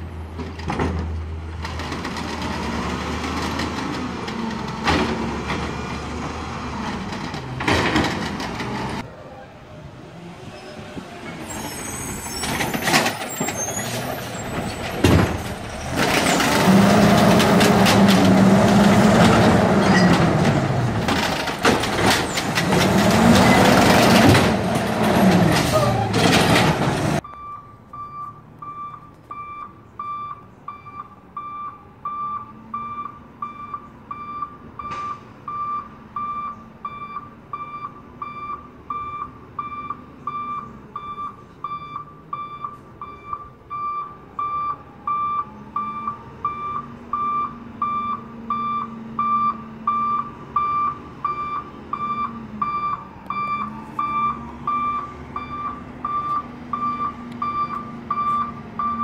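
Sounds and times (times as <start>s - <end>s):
truck back-up alarm beeping: 27.2s - 59.0s.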